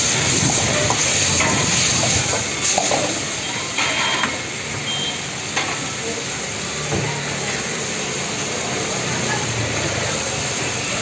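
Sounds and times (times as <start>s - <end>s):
food sizzling in a wok: 0.0s - 11.0s
metal ladle scraping a wok: 3.7s - 4.3s.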